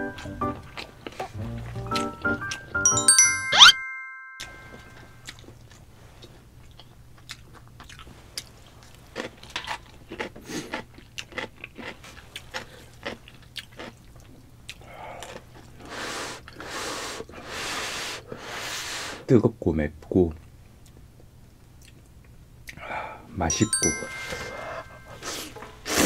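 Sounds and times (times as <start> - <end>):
crunching pickled radish: 6.7 - 16.6
slurping noodles: 15.8 - 19.2.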